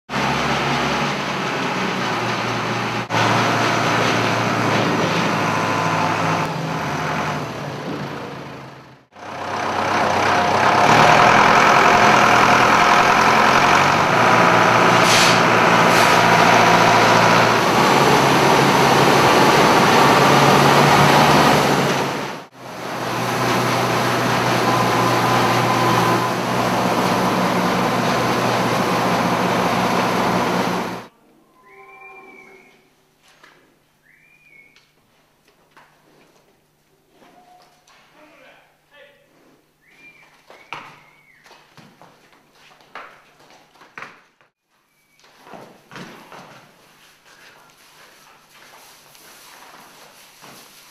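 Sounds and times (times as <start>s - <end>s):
straw blower running: 0.1s - 8.4s, 9.2s - 31.1s.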